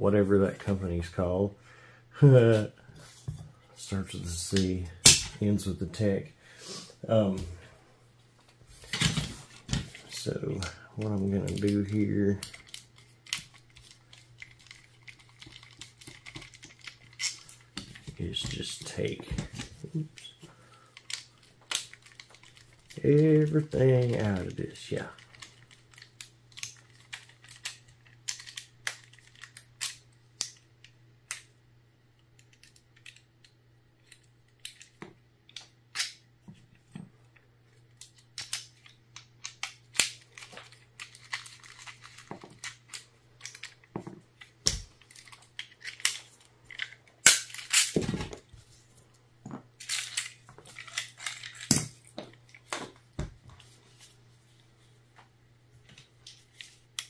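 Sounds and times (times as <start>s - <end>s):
small plastic and metal parts rattling: 38.0s - 48.4s, 49.8s - 52.8s.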